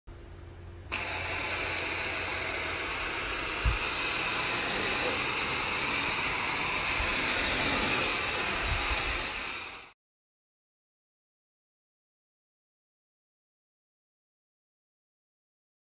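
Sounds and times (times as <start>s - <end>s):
foam gun spraying water: 0.9s - 10.0s.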